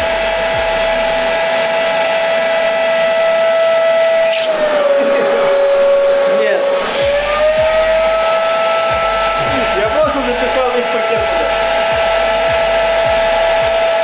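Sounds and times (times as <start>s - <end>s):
vacuum cleaner high whine: 0.0s - 14.0s.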